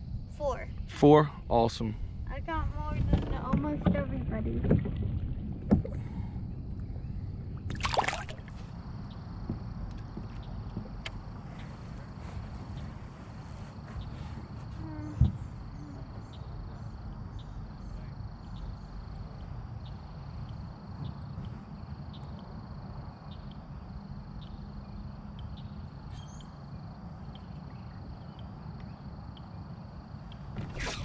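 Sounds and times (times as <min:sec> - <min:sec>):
low rumble: 0:00.0 - 0:13.6
high insect trill: 0:06.2 - 0:31.0
bird chirping: 0:24.4 - 0:26.6.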